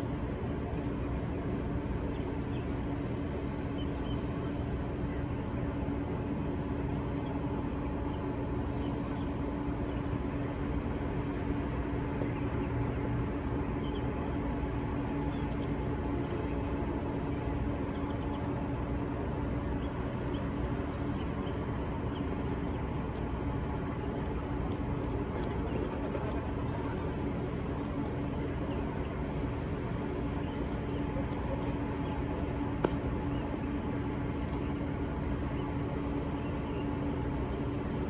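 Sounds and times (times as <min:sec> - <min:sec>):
mechanical hum: 0:00.0 - 0:38.0.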